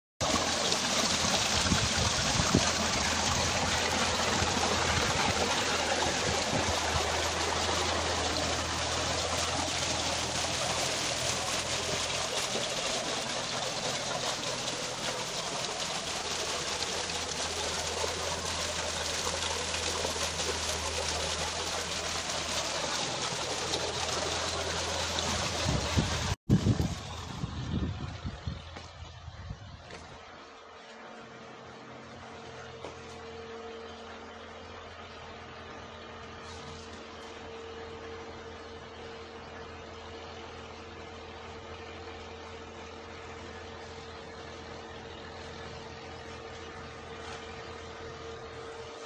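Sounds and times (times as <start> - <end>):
water pouring into concrete tank: 0.2 - 28.2.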